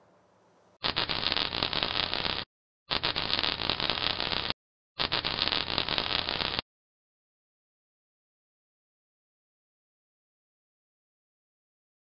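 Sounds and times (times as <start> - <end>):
hissing crackling noise bursts: 0.8 - 6.6.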